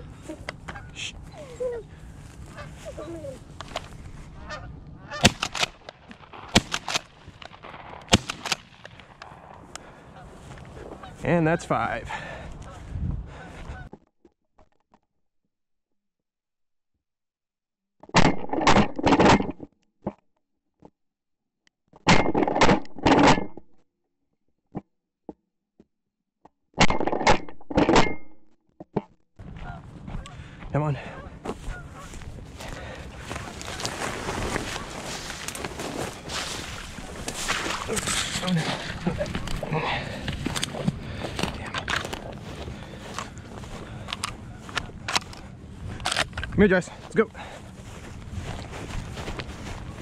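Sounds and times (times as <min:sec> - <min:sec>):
geese honking: 0:00.2 - 0:01.3, 0:02.4 - 0:03.3, 0:04.3 - 0:05.4, 0:09.8 - 0:13.9, 0:29.5 - 0:30.4, 0:31.0 - 0:45.1
shotgun shots: 0:05.2 - 0:09.5.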